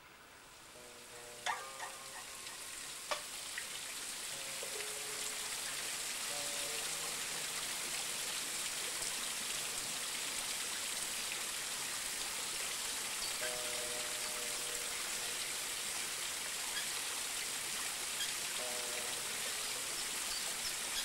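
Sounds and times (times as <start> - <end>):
rain-like hiss: 0.0 - 21.0
faint held music notes: 0.6 - 3.4, 4.2 - 10.0, 13.2 - 16.4, 18.5 - 21.0.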